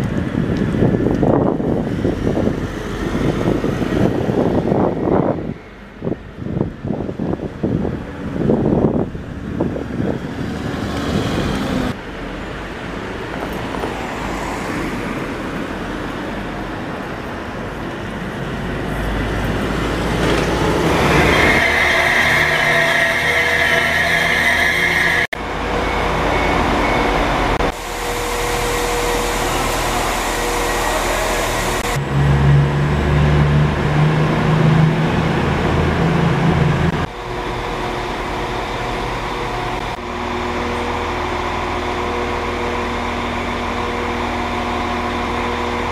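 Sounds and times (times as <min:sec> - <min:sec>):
buses trains and trams passing: 0:00.0 - 0:45.9
steady high whine: 0:19.9 - 0:45.9
low steady drone: 0:20.7 - 0:45.9.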